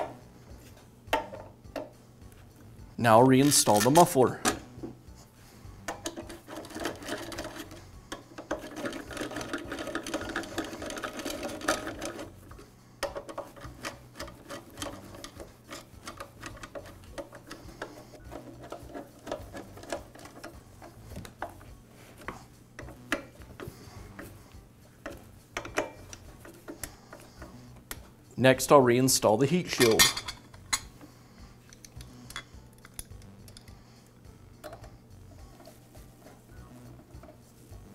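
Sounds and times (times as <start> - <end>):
metal scraping: 13.2 - 27.9.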